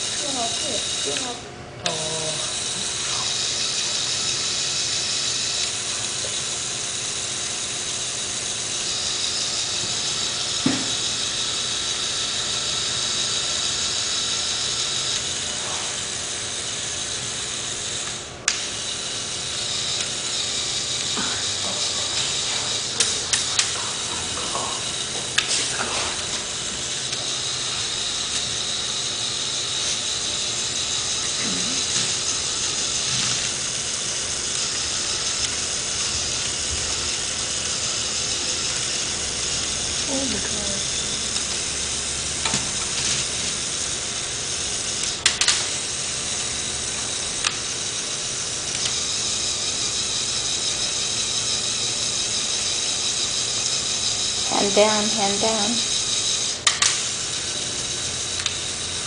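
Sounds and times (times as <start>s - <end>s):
electric motor whirring through gears: 0.0s - 59.0s
sharp mechanism clicks: 44.9s - 45.8s, 56.6s - 57.2s, 58.3s - 58.8s.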